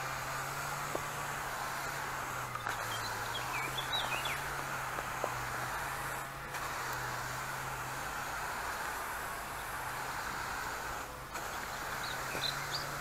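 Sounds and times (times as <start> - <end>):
sprayer nozzle hissing: 0.0 - 13.0
bird chirping: 2.6 - 4.5, 11.5 - 13.0.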